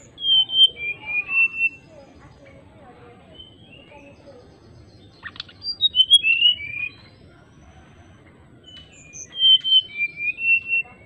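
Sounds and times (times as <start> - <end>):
bird singing flute-like whistles: 0.0 - 2.0, 5.2 - 7.1, 8.6 - 11.0.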